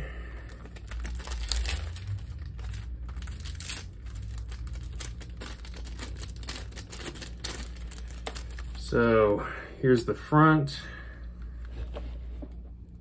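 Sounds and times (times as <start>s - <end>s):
shrink wrap crinkling and tearing: 0.3s - 9.0s.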